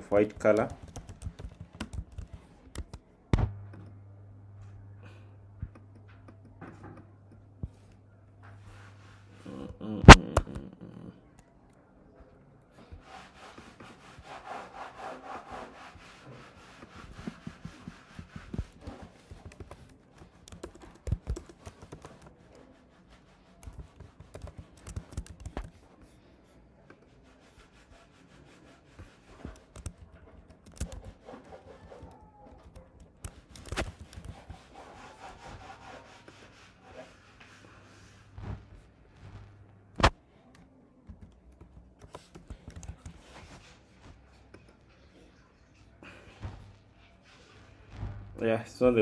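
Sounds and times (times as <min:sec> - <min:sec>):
typing on computer keyboard: 0:00.2 - 0:03.0, 0:19.2 - 0:22.4, 0:23.6 - 0:25.8, 0:29.4 - 0:31.2, 0:31.9 - 0:34.4, 0:40.4 - 0:43.3.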